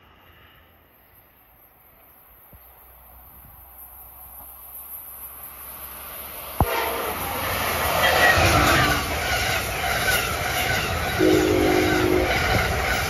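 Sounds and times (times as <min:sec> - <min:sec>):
train passing at speed: 0:00.0 - 0:13.0
train horn chord: 0:06.6 - 0:07.4, 0:11.2 - 0:13.0.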